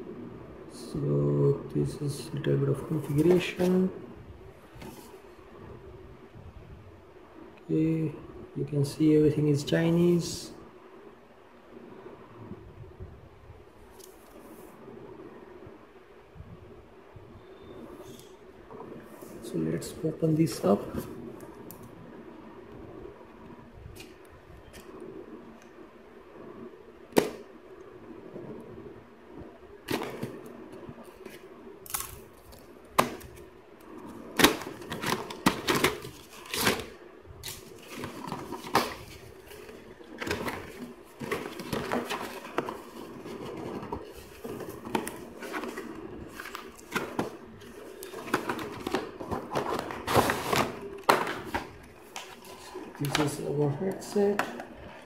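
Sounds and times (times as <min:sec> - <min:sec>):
paper and plastic rustling: 0:02.1 - 0:03.9, 0:04.7 - 0:05.4, 0:29.8 - 0:55.0
cardboard box opening: 0:34.4 - 0:53.4.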